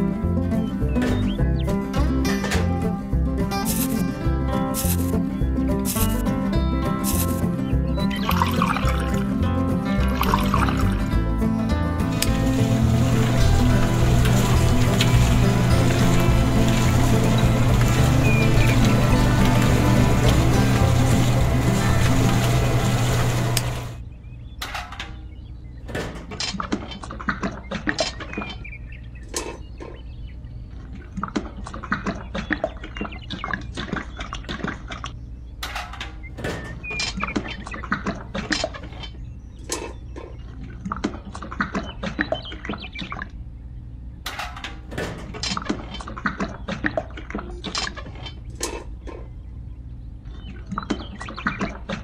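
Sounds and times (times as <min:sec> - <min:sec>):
wet concrete pouring: 0:09.9 - 0:11.1, 0:12.0 - 0:24.0.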